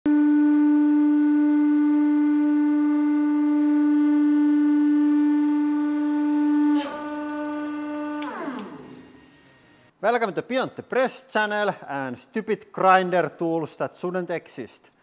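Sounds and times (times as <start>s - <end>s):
loud pitched hum: 0.1s - 9.9s
click: 6.8s - 8.8s.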